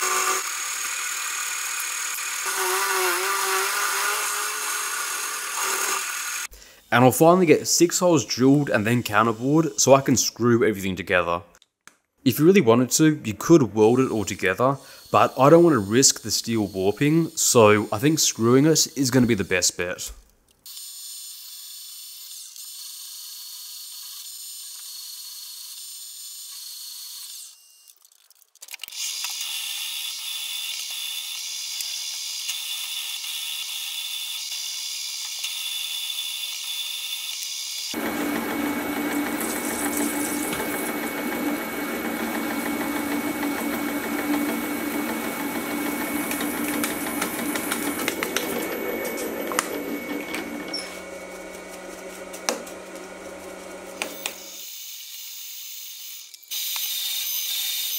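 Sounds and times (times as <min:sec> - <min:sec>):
drill cutting into steel: 0:00.0 - 0:06.5, 0:20.7 - 0:28.0, 0:28.9 - 0:51.2, 0:53.9 - 0:57.9
steady hum: 0:38.0 - 0:54.5
milling machine spindle running: 0:38.0 - 0:54.6.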